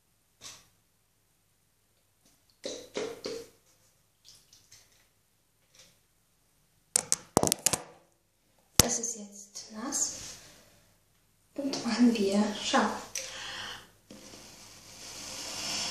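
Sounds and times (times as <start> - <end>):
wet splashing and squishing: 4.1 - 5.1.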